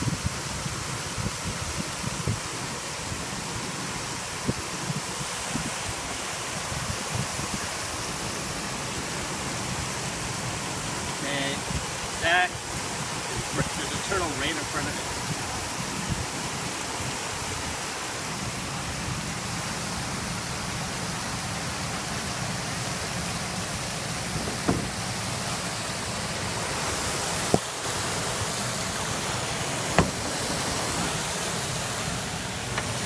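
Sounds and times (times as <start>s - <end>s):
steady rushing hiss: 0.0s - 33.0s
short sharp knocks: 24.5s - 25.0s, 30.0s - 30.2s.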